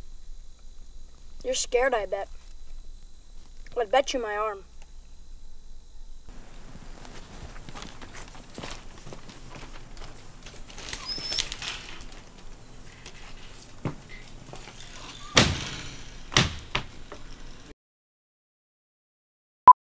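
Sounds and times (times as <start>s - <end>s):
light outdoor ambience: 0.0s - 17.7s
sharp thumps or knocks: 15.4s - 17.2s.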